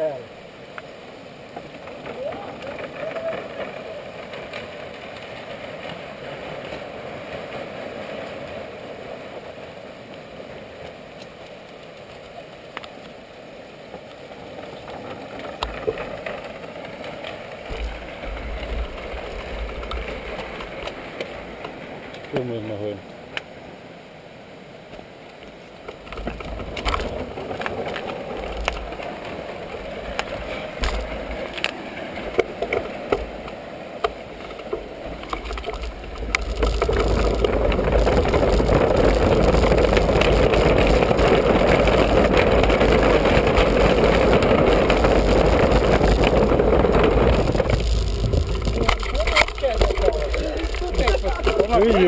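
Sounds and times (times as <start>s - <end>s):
fast-running river water: 0.0s - 52.0s
wind rumbling on microphone: 14.4s - 22.9s, 25.8s - 52.0s
bike rattling and knocking: 34.5s - 52.0s.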